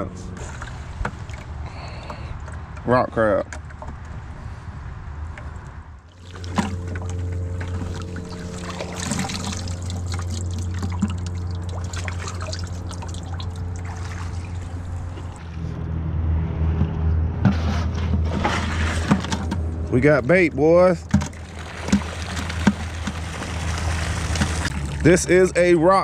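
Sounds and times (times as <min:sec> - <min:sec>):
water splashing and dripping: 0:00.4 - 0:01.6, 0:06.1 - 0:15.4, 0:21.0 - 0:25.3
low rumble: 0:04.3 - 0:26.0.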